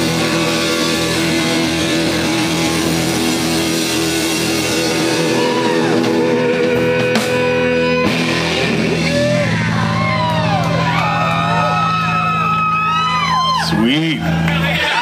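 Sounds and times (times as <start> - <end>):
rock band guitar chord ringing: 0.0 - 13.6
audience whooping and whistling: 5.0 - 6.9, 9.0 - 15.0.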